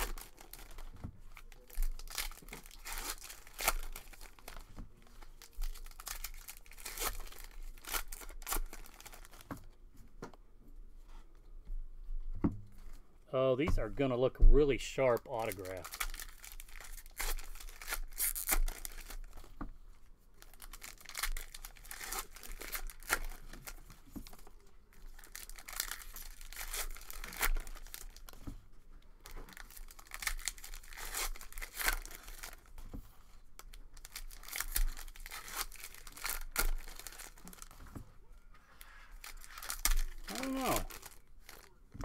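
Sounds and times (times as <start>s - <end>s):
wrapper tearing and crinkling: 0.0s - 9.4s, 15.2s - 19.5s, 20.4s - 28.4s, 29.2s - 32.7s, 33.6s - 37.8s, 38.8s - 41.8s.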